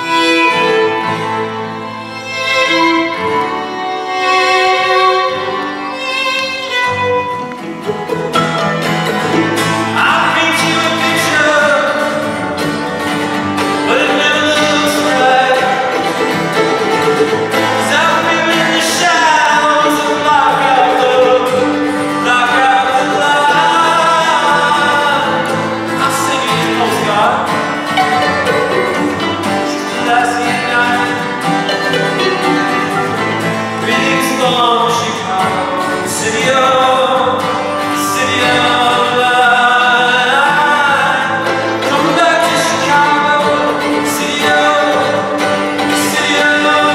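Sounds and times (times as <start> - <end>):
acoustic guitar: 0.0 - 46.9
plucked violin: 0.0 - 46.9
man singing: 9.4 - 16.9, 17.5 - 46.9.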